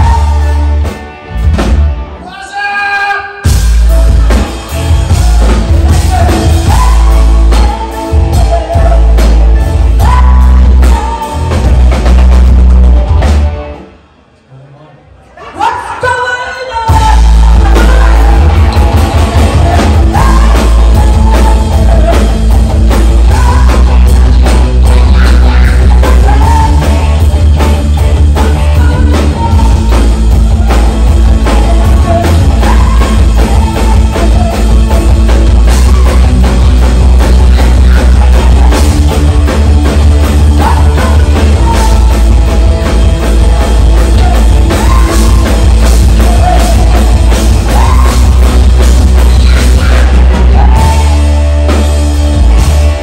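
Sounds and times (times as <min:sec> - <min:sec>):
rock band playing: 0:00.0 - 0:14.4, 0:16.6 - 0:53.0
woman singing: 0:05.4 - 0:11.9, 0:16.0 - 0:27.4, 0:28.0 - 0:42.7, 0:43.8 - 0:51.4.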